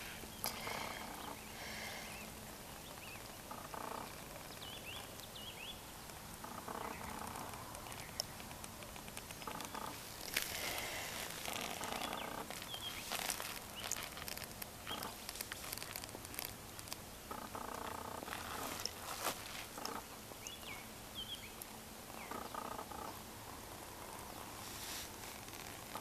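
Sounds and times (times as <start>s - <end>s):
rustling clicks: 6.0s - 20.1s.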